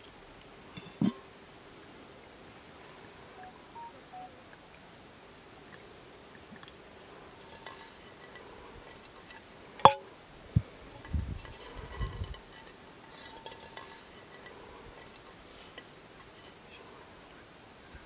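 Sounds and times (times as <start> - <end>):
clay pot clink: 0.7 - 1.2, 7.3 - 10.2, 11.0 - 16.9
oil trickling: 5.7 - 17.9.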